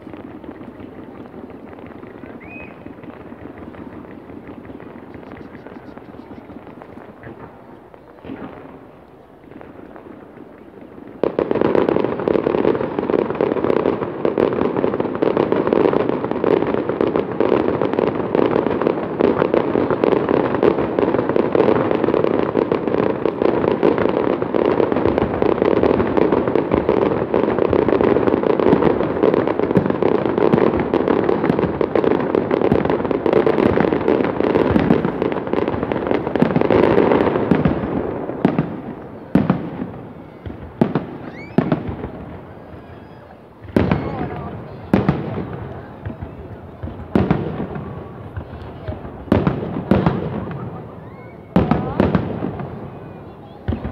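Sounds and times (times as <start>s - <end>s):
fireworks bursting and crackling: 0.0s - 53.9s.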